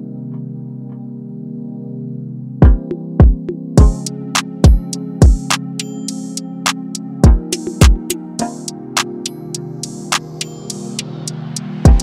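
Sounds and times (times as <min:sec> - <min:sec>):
synth chords: 0:00.0 - 0:12.0
drum-machine beat: 0:02.6 - 0:12.0.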